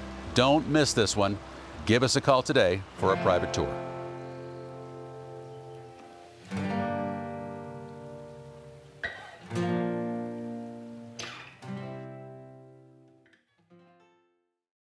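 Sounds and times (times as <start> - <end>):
acoustic guitar strums: 2.9 - 14.0.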